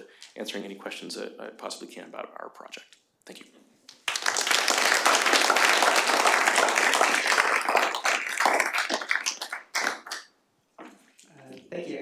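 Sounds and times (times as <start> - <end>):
audience applauding: 4.0 - 10.3.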